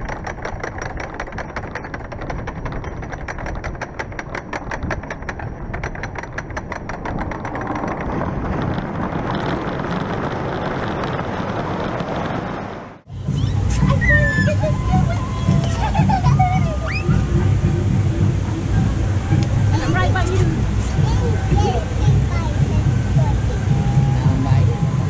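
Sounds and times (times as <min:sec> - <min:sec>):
rapid mechanical clicking: 0:00.0 - 0:11.2
steady rushing noise: 0:00.0 - 0:25.0.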